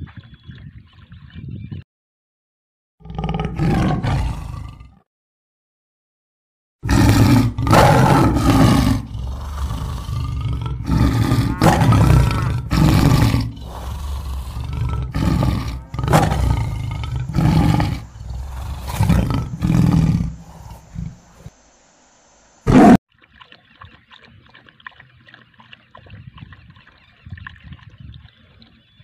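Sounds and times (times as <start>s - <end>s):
big cat roars and growls: 3.0s - 5.1s, 6.8s - 21.5s, 22.7s - 23.0s.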